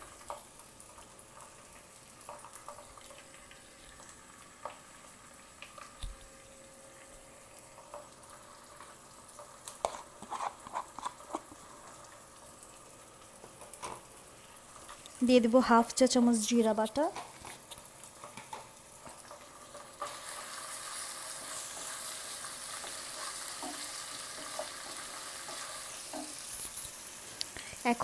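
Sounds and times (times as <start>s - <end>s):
small crackles and pops: 0.0s - 15.4s, 16.9s - 28.0s
onions sizzling in oil: 0.0s - 28.0s.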